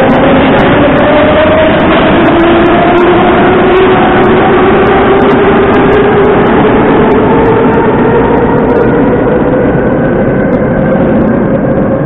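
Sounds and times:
traction motors whining: 0.0s - 12.0s
train wheel and running noise: 0.0s - 12.0s.

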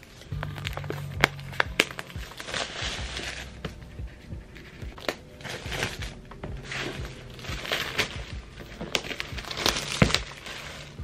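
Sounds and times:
plastic wrapping crinkling: 0.0s - 11.0s.

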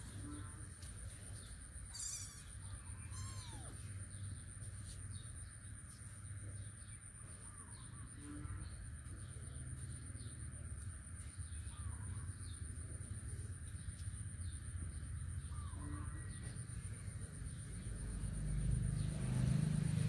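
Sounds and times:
steady low hum: 0.0s - 20.0s
faint animal calls: 1.9s - 4.1s, 15.5s - 16.6s.

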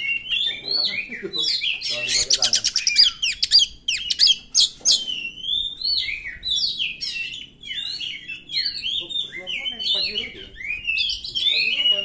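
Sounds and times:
bird singing whistles and clicks: 1.7s - 6.3s.

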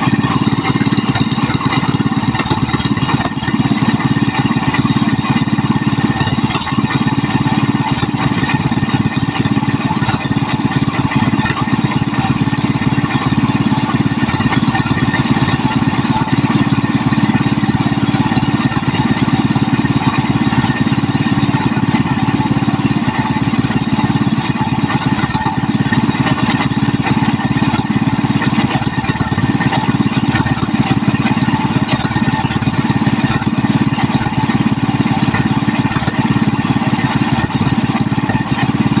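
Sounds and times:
single-cylinder engine chugging: 0.0s - 39.0s.

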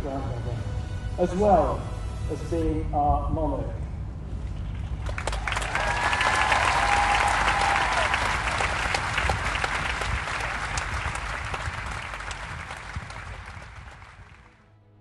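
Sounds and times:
crowd applauding: 4.7s - 14.6s.

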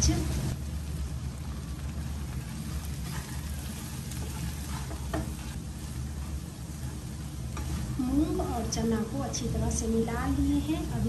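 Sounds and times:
light frying sizzle: 0.0s - 11.0s
wooden spatula scraping pan: 2.3s - 8.1s.

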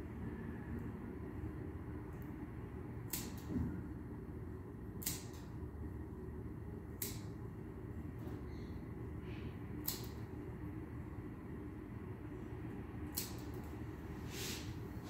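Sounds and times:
steady low hum: 0.0s - 15.0s
scissors snipping fur: 3.0s - 3.5s, 5.0s - 5.5s, 6.9s - 7.4s, 9.8s - 10.3s, 13.1s - 13.6s.

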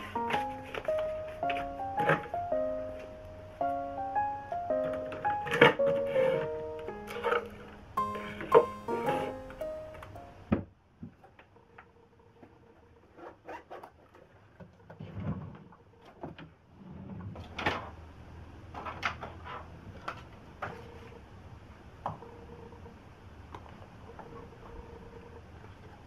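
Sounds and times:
drawer sliding: 0.0s - 2.4s, 4.8s - 9.7s.

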